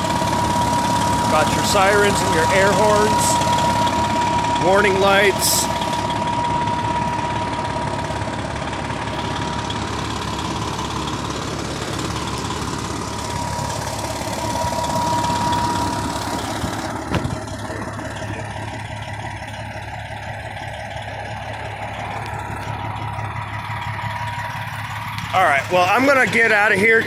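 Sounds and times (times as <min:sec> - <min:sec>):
diesel engine idling: 0:00.0 - 0:27.0
thin steady whine: 0:00.0 - 0:27.0.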